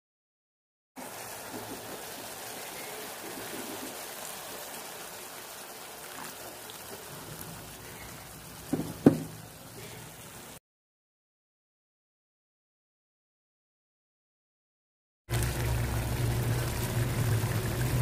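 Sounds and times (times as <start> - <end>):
vegetables sizzling in a wok: 1.0 - 10.6, 15.3 - 18.0
loud knocks: 8.7 - 9.4.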